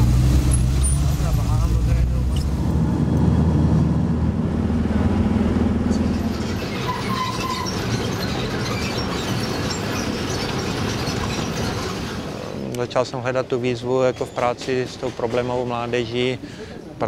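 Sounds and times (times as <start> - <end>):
vehicle engine hum: 0.0 - 13.0
rumbling ride noise: 0.0 - 16.4.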